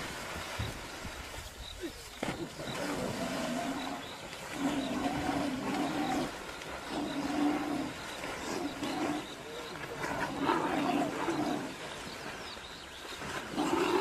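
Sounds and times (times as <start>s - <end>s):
water churning and splashing: 0.0s - 14.0s.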